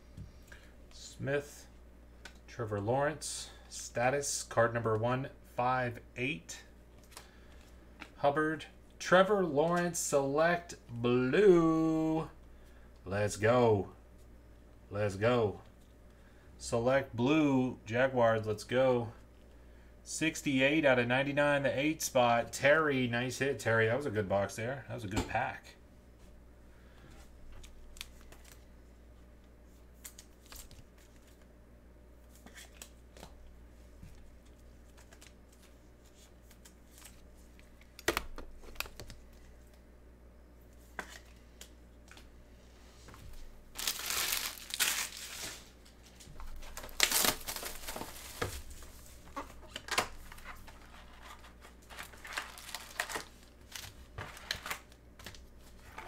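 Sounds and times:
card wrappers tearing and crinkling: 0:43.7 - 0:45.8, 0:46.5 - 0:48.9, 0:49.7 - 0:55.4.

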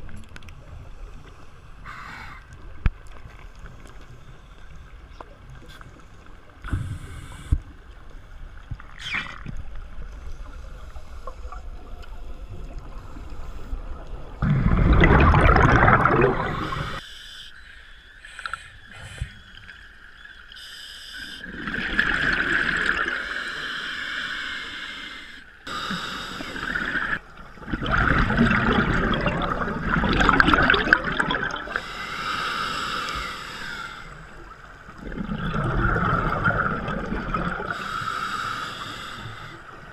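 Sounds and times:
underwater bubbles gurgling: 0:02.5 - 0:17.0, 0:21.2 - 0:23.5, 0:26.4 - 0:32.0, 0:33.1 - 0:39.9.

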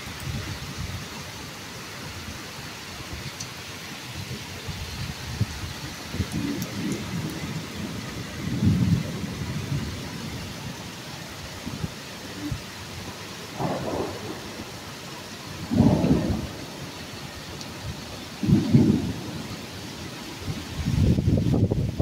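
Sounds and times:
heavy rain pouring: 0:00.0 - 0:22.0
wind: 0:00.0 - 0:22.0
low thunder rumbles: 0:04.2 - 0:22.0.

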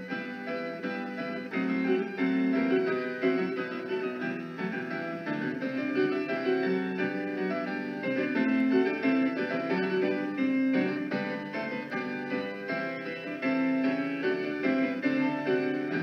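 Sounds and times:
solo keyboard music: 0:00.0 - 0:16.0.

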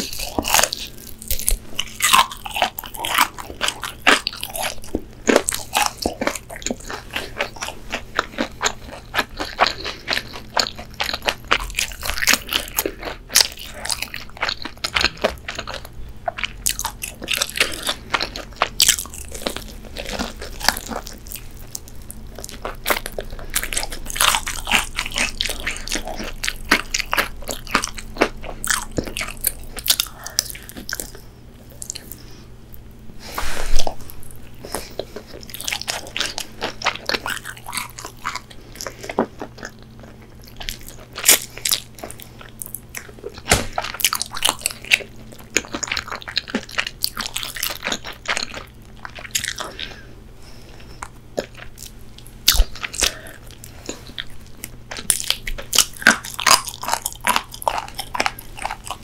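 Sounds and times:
crunchy chewing: 0:00.0 - 0:59.0.

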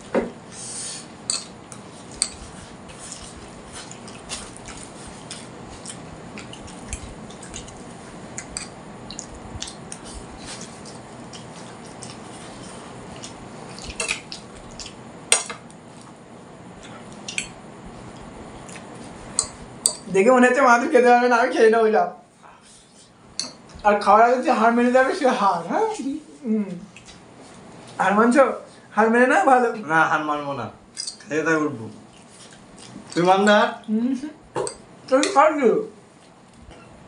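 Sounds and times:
steady background hiss: 0:00.0 - 0:37.0
clicks and taps of eating: 0:03.9 - 0:10.0, 0:19.4 - 0:20.1.

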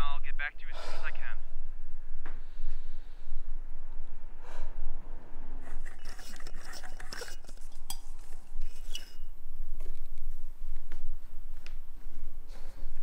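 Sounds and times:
glass clinking and scraping: 0:05.6 - 0:09.4.

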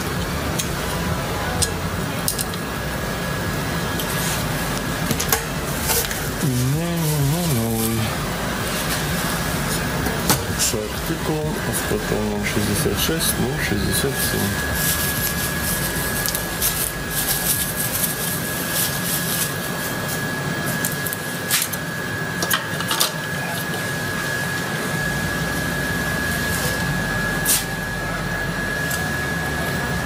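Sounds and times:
bubble wrap rustling and crackling: 0:03.9 - 0:21.8.

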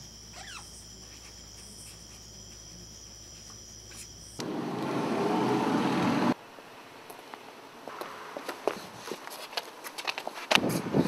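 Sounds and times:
marker pen squeaking on paper: 0:00.3 - 0:02.7
loud rushing noise: 0:04.4 - 0:06.4.

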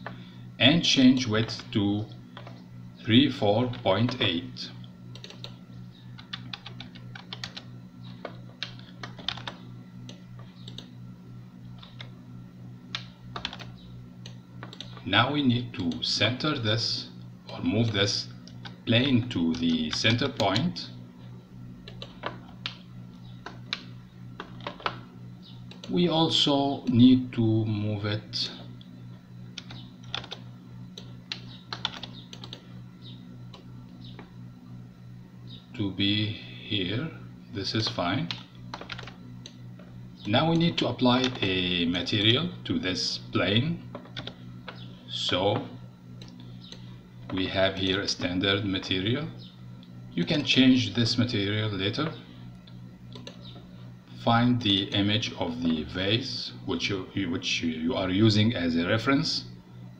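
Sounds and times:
steady low hum: 0:00.0 - 0:59.9
keyboard keys clicking: 0:05.2 - 0:05.5, 0:06.2 - 0:10.9, 0:12.9 - 0:15.0, 0:21.8 - 0:22.8, 0:29.6 - 0:30.4, 0:31.0 - 0:32.6, 0:38.3 - 0:39.6, 0:43.9 - 0:44.8.

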